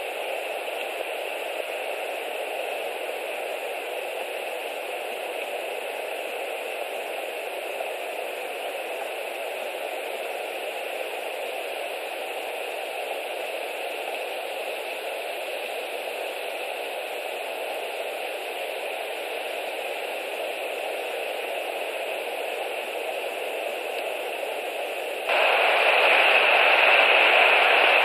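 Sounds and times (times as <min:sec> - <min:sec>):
background hiss: 0:00.0 - 0:28.0.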